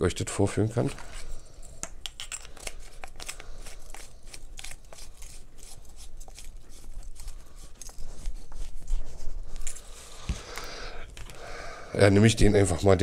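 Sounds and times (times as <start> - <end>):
hands rummaging small objects: 0.8 - 8.7.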